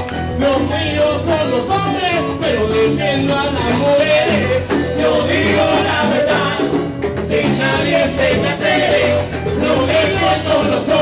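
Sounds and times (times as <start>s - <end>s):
live band playing: 0.0s - 11.0s
lead singer singing: 0.2s - 11.0s.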